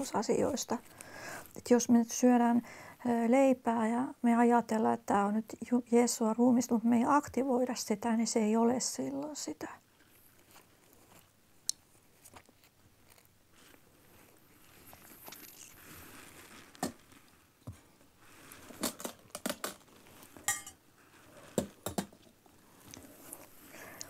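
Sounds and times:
food crinkling and crunching: 10.0s - 24.0s
dishes and cutlery clicking: 20.5s - 20.8s.

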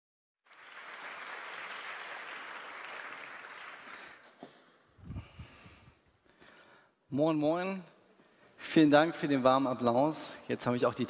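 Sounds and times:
audience applause: 0.5s - 4.4s.

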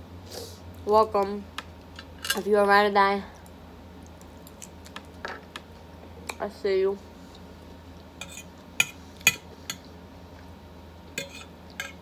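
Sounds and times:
fork clinking on plate: 11.2s - 12.0s.

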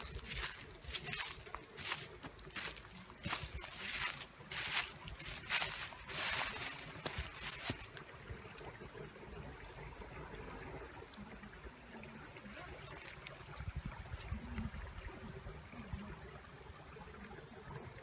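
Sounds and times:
creek trickling over rocks: 0.0s - 18.0s.

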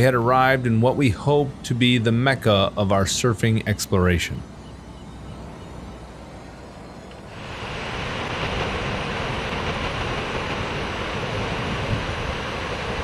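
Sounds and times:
ocean surf rushing: 7.2s - 13.0s.

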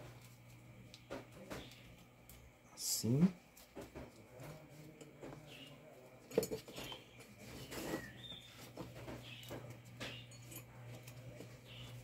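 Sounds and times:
low steady hum: 0.0s - 12.0s
hands clicking and knocking on wiring: 3.5s - 12.0s
faint bird chirps: 6.7s - 10.5s.

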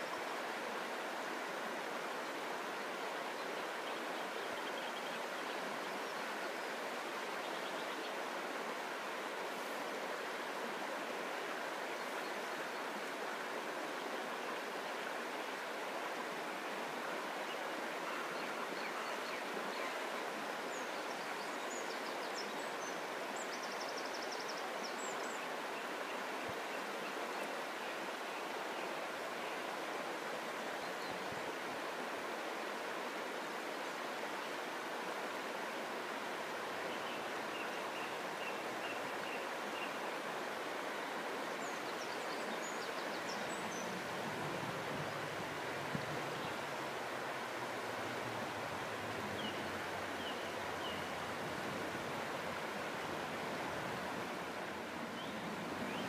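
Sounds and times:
river rushing over stones: 0.0s - 56.0s
faint bird calls: 17.5s - 20.0s.

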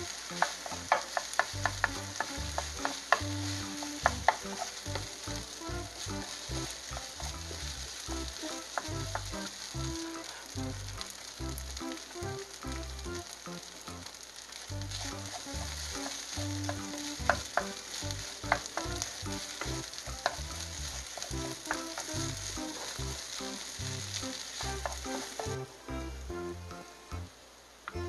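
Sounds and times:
rice sizzling in frying pan: 0.0s - 28.0s
spatula tapping and scraping pan: 0.1s - 9.6s, 15.0s - 25.6s.

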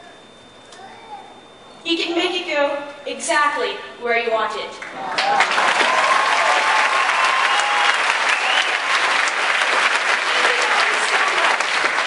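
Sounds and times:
audience applauding: 4.8s - 12.0s.

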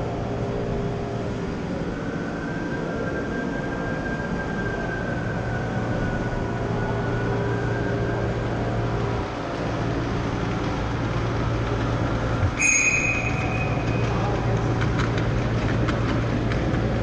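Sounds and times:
faint high whine: 0.0s - 11.0s, 12.2s - 14.8s
model train wheels rolling on track: 8.5s - 17.0s.

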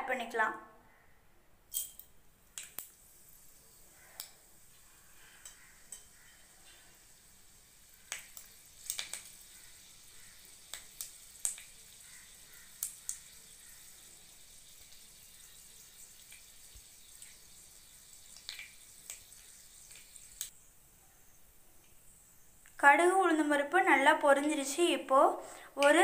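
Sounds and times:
mustard seeds popping in oil: 1.7s - 20.5s.

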